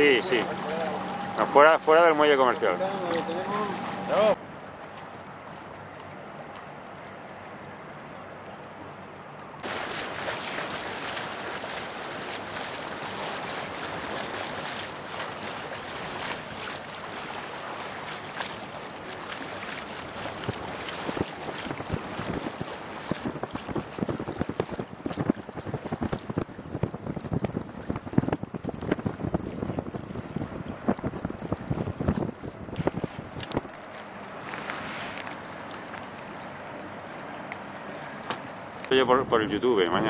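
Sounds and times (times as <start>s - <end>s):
rushing water: 0.0s - 40.0s
wind buffeting microphone: 9.6s - 34.4s, 38.6s - 40.0s.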